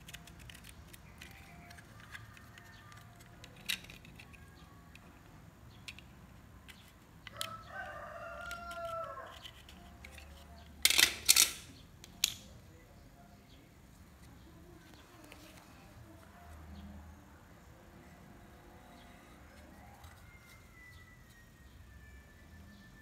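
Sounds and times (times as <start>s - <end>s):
rooster crowing: 7.3s - 9.5s.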